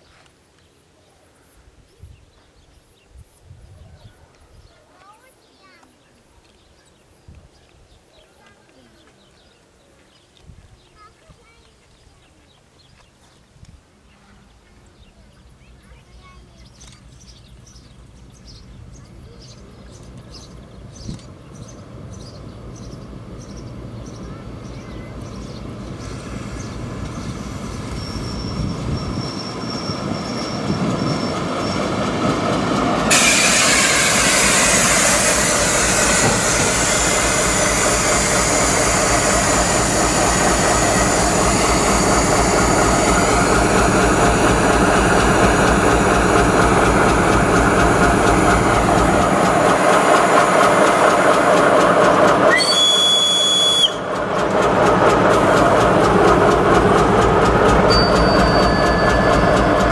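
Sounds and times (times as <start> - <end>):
diesel train passing: 15.3 - 59.9
short high squeal: 33.1 - 39.6, 52.5 - 54.1.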